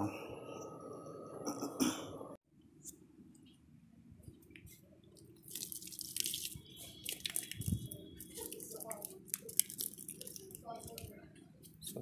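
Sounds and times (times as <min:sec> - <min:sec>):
water pouring and splashing: 0:05.3 - 0:11.1.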